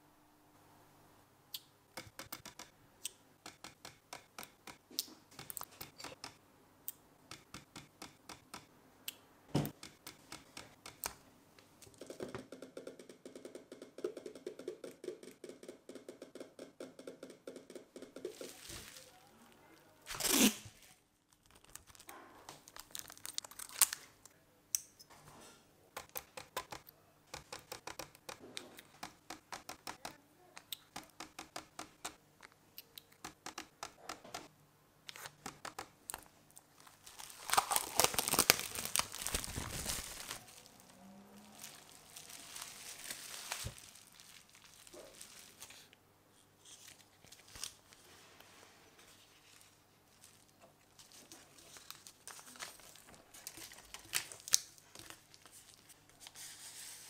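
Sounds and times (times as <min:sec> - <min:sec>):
rustling: 0:18.2 - 0:24.0, 0:36.6 - 0:57.0.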